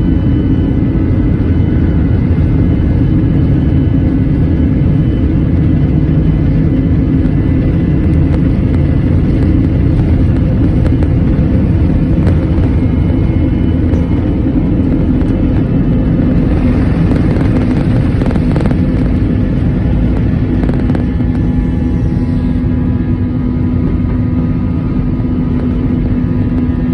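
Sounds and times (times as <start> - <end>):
jet engines roaring: 0.0 - 26.9
wheels rumbling on runway: 0.0 - 26.9.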